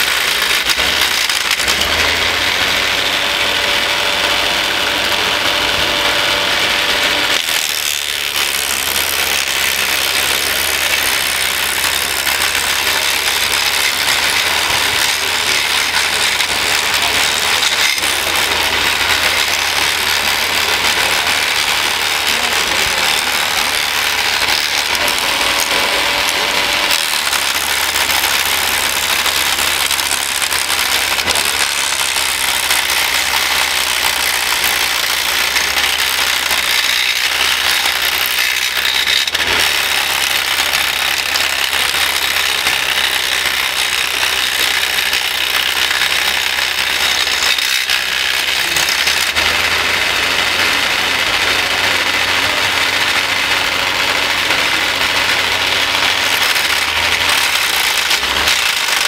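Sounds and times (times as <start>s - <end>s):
wood chipper shredding branches: 0.0s - 59.0s.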